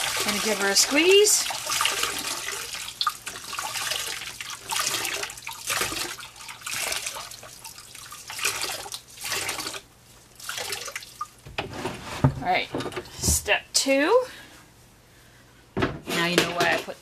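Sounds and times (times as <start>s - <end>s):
water splashing into a tub: 0.0s - 11.4s
water wrung from a cloth: 0.0s - 11.4s.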